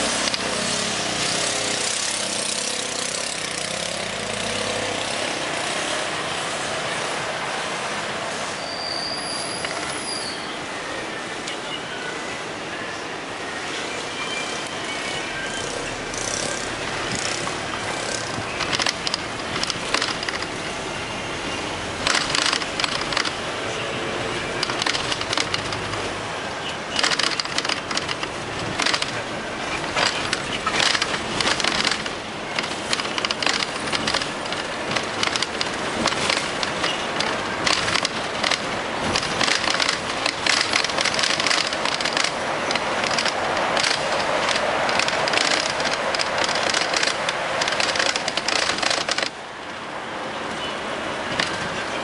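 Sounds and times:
bus cabin rushing noise: 0.0s - 10.3s, 15.6s - 52.0s
crackling and rattling clicks: 17.1s - 20.7s, 22.0s - 23.4s, 24.6s - 26.1s, 27.0s - 49.8s, 51.3s - 51.7s.

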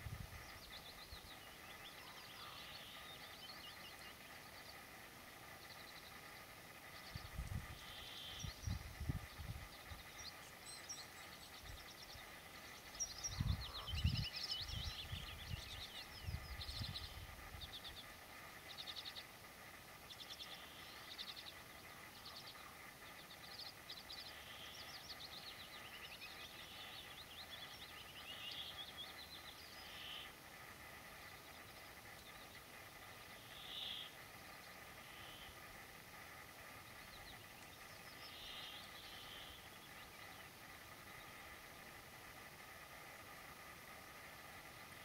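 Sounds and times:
bird singing trilled phrases: 0.0s - 19.4s, 20.0s - 35.6s, 36.8s - 41.6s
wind buffeting microphone: 7.1s - 7.8s, 8.4s - 9.7s, 13.3s - 17.6s.

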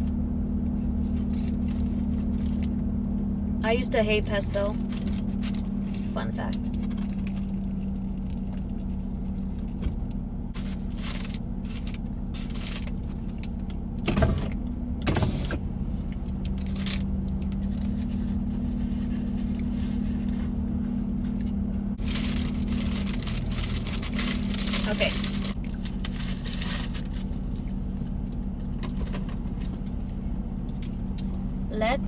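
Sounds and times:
car engine idling: 0.0s - 32.0s
paper wrapper rustling: 10.6s - 13.0s, 22.0s - 27.8s.

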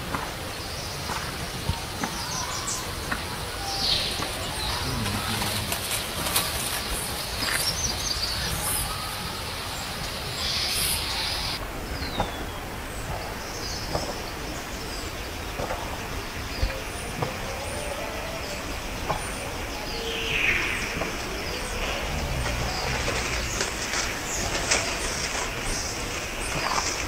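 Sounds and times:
low outdoor rumble: 0.1s - 17.4s, 18.0s - 27.0s
bird chirps: 6.7s - 15.8s.

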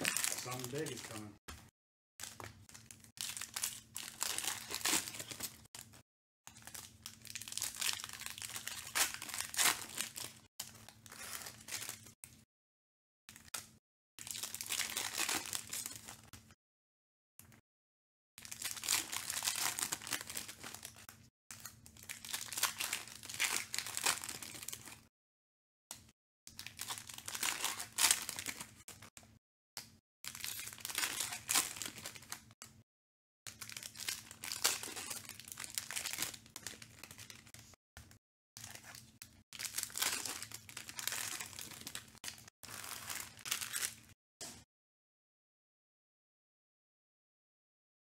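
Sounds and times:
foil wrappers crinkling and tearing: 0.0s - 1.3s, 2.2s - 5.9s, 6.5s - 12.1s, 14.3s - 16.2s, 18.5s - 25.0s, 26.6s - 29.0s, 30.3s - 32.4s, 33.5s - 37.6s, 38.6s - 44.1s.

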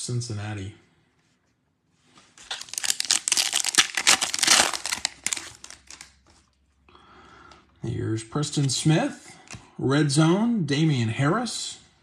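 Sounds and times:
wrapper torn and crinkled: 2.4s - 6.2s.

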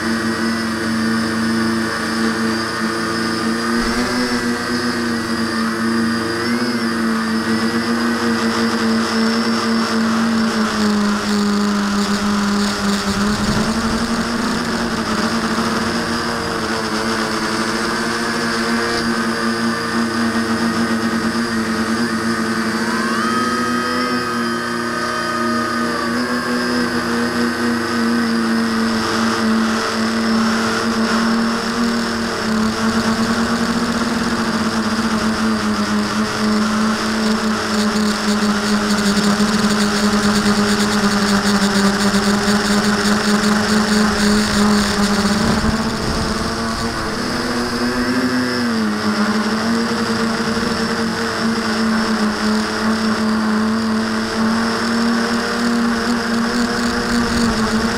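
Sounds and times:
quadcopter propellers humming: 0.0s - 57.9s.

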